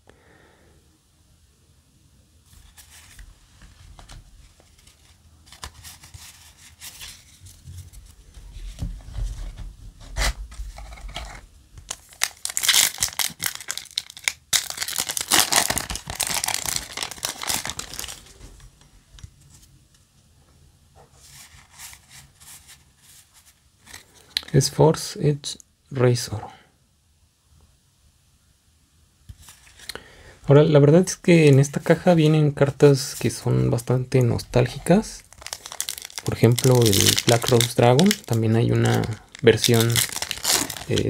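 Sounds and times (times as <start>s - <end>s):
cards being handled: 2.5s - 9.4s, 10.1s - 19.8s, 34.2s - 41.0s
foil wrapper tearing and crinkling: 11.9s - 18.4s, 35.1s - 41.0s.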